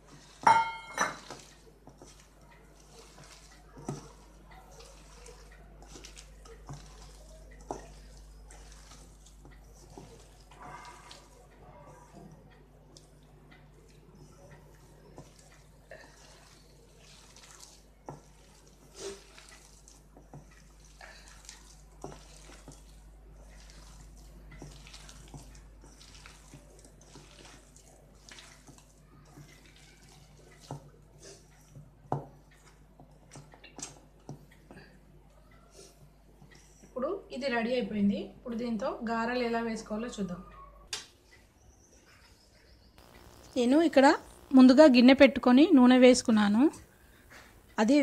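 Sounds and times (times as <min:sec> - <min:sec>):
hand squelching thick batter: 0:01.2 - 0:35.0
faint steady hum: 0:42.8 - 0:48.0.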